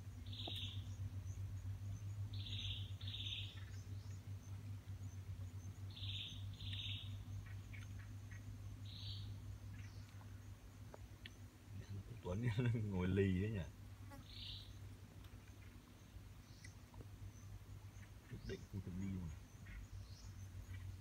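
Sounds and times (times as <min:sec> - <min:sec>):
steady low hum: 0:00.0 - 0:21.0
bird calling: 0:00.2 - 0:01.0, 0:02.3 - 0:04.2, 0:05.9 - 0:10.4, 0:17.9 - 0:21.0.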